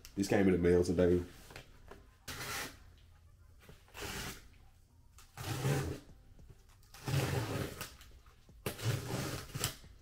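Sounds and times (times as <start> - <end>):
blade slicing tape and cardboard: 2.3 - 2.8, 3.8 - 4.5, 5.2 - 6.1, 6.9 - 10.0.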